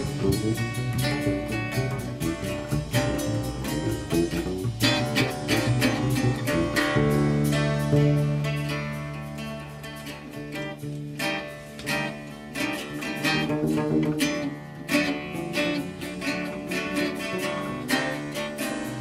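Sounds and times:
plucked bass string notes: 0.0s - 19.0s
plucked string melody: 0.0s - 19.0s.

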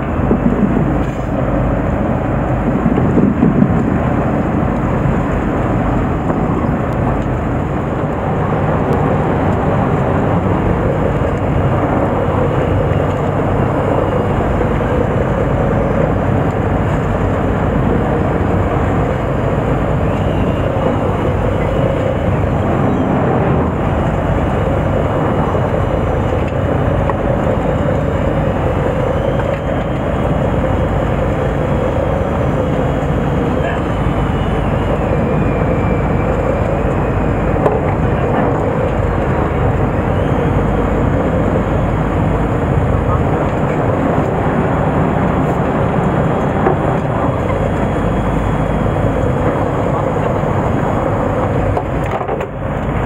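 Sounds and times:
boat engine rumbling: 0.0s - 53.0s
water noise: 0.0s - 53.0s
wind: 0.0s - 53.0s.

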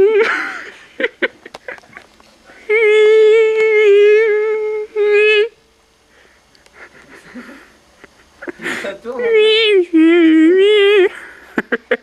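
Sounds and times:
high hummed note: 2.5s - 6.4s.

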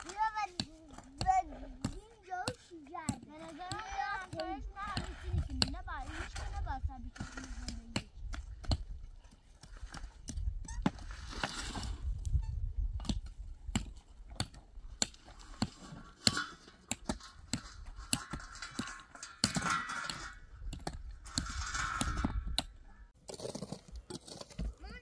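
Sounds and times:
scraping or rustling: 3.3s - 8.1s, 9.6s - 12.8s, 15.0s - 25.0s
irregular clicks and knocks: 13.0s - 22.8s.

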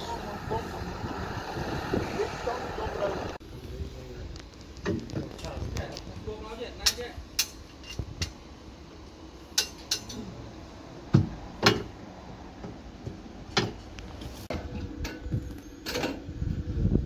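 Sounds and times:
steel bar clinking and clanking: 9.6s - 10.2s.

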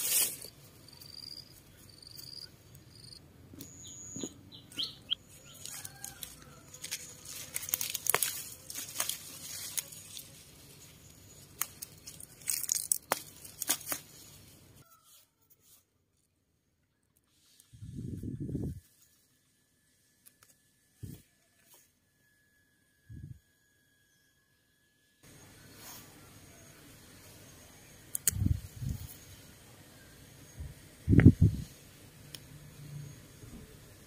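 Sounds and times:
rustling leaves: 0.0s - 1.0s, 5.3s - 15.8s
high bird chirps: 1.1s - 5.6s
stems and roots snapping: 5.6s - 14.4s, 28.1s - 28.5s.

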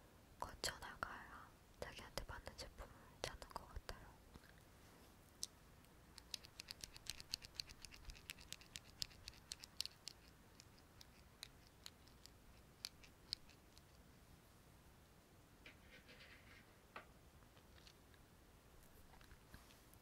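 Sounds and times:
small cosmetic item clicking: 6.2s - 14.0s.

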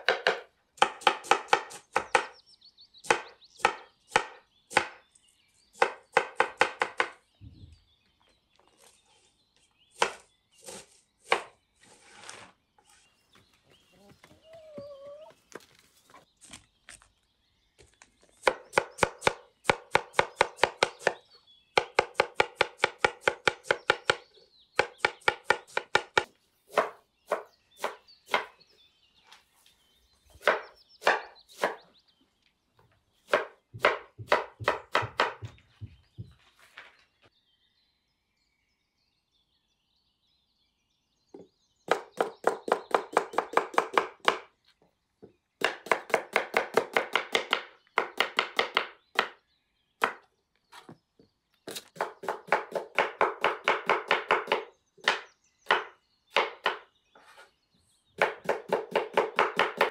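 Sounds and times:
knife chopping vegetables: 30.4s - 31.8s, 33.3s - 35.6s, 51.7s - 57.4s, 58.2s - 59.9s.

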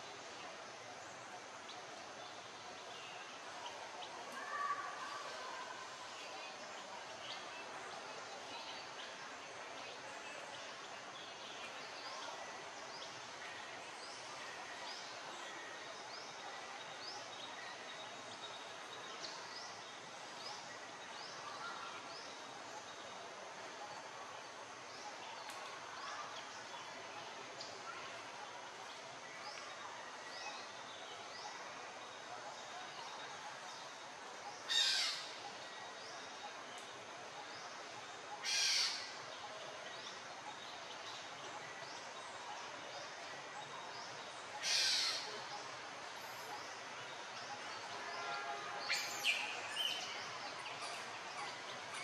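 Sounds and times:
steady background hiss: 0.0s - 52.0s.

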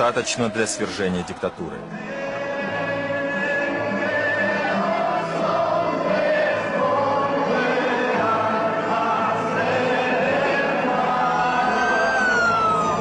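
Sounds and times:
choir singing slowly: 0.0s - 13.0s
siren rising: 11.4s - 13.0s.

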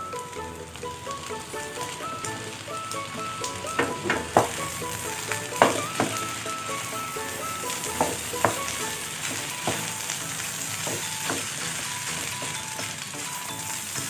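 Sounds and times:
rice sizzling in pan: 0.0s - 14.0s
spatula knocking and scraping pan: 3.7s - 13.0s.

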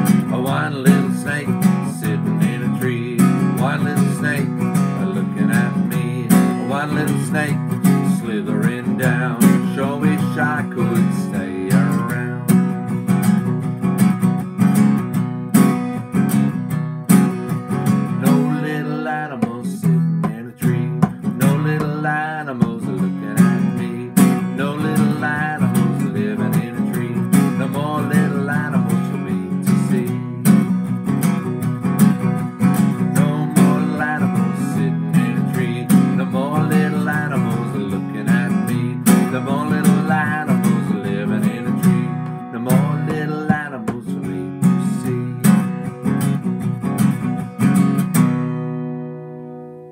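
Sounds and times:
man singing: 0.0s - 12.9s, 18.0s - 30.9s, 32.3s - 46.4s
acoustic guitar strumming: 0.0s - 49.9s.

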